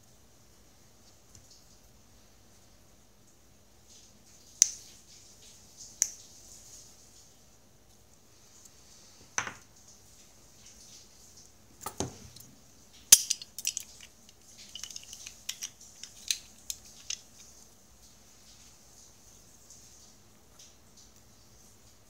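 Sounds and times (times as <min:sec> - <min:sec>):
light clicks and clinks: 0:13.1 - 0:17.6.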